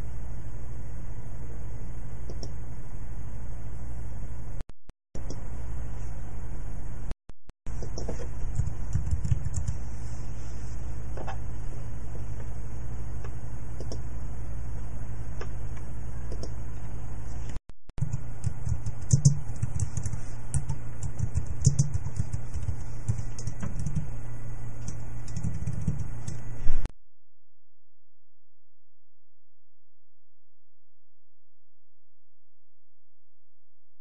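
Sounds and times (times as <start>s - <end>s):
steady low hum: 0.0s - 4.6s, 5.2s - 26.9s
keyboard typing clicks: 7.8s - 9.8s, 18.0s - 24.1s, 24.8s - 26.4s.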